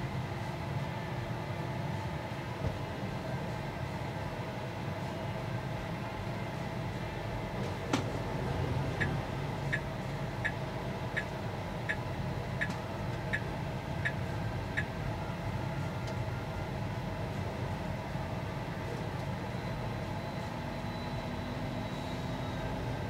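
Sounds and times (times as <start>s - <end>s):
car cabin low rumble: 6.0s - 20.2s
turn signal ticking: 9.0s - 12.0s, 12.6s - 14.2s.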